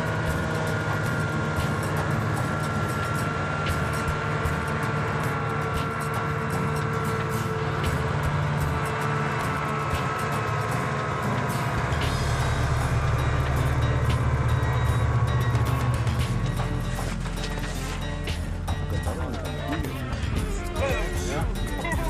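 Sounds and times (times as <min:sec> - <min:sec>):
small vehicle engine humming: 0:00.0 - 0:22.0.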